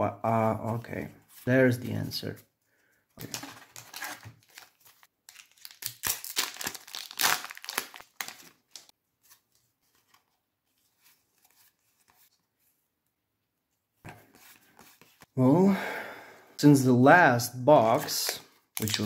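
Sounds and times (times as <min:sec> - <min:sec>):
foil wrapper crinkling: 0:03.2 - 0:08.9
cards rustling: 0:03.2 - 0:12.4, 0:14.1 - 0:15.3, 0:17.8 - 0:19.0.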